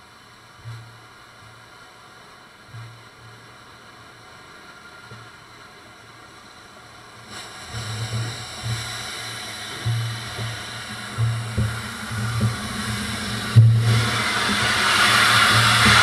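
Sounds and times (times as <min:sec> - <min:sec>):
steam locomotive hissing: 0:06.6 - 0:16.0
low rumbles: 0:07.4 - 0:16.0.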